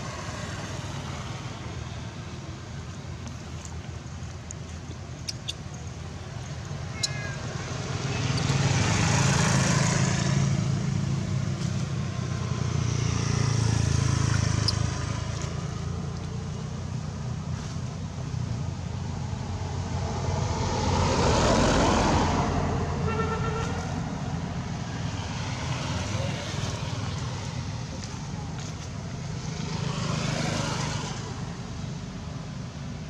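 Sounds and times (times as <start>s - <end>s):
low engine rumble: 0.0s - 20.7s
vehicles passing by: 0.0s - 33.0s.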